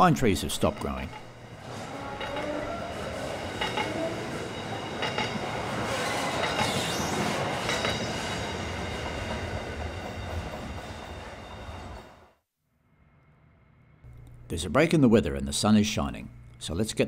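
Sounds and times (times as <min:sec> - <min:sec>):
freight train rumbling past: 0:00.0 - 0:12.3
wheels clattering over rail joints: 0:00.4 - 0:10.8
train wheels squealing: 0:01.4 - 0:12.2.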